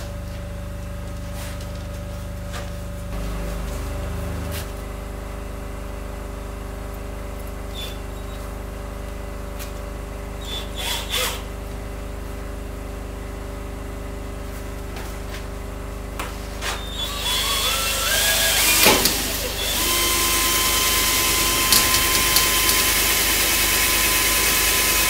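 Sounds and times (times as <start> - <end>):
steady machine hum: 0.0 - 25.0
cordless drill whirring: 10.4 - 11.5, 16.8 - 25.0.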